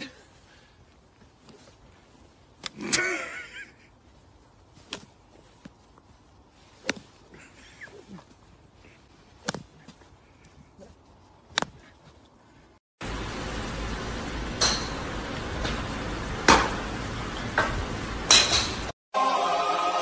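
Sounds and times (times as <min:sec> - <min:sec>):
golf club hitting sand: 0:06.8 - 0:07.1, 0:09.4 - 0:09.7.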